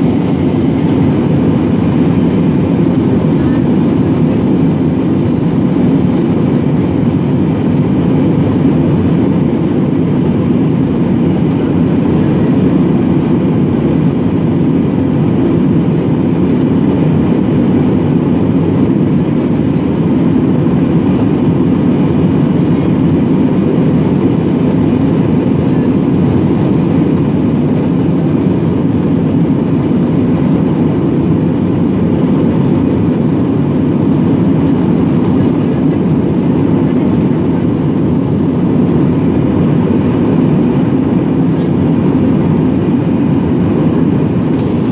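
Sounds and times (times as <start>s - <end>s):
rushing air: 0.0s - 25.4s
jet engines rumbling: 0.0s - 44.9s.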